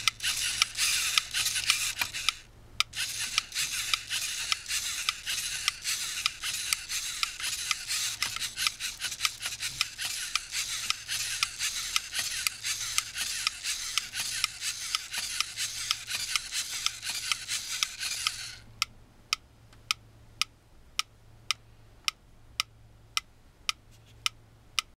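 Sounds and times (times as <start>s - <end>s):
geared motors rattling: 0.0s - 18.6s.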